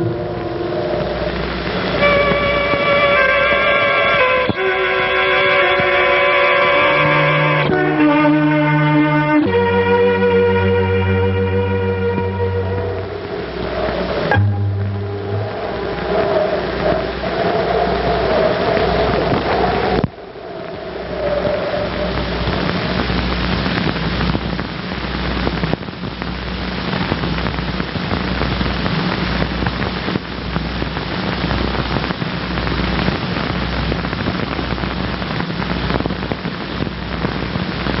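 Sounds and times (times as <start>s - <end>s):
crackling hiss: 0.0s - 38.0s
low hum: 0.0s - 38.0s.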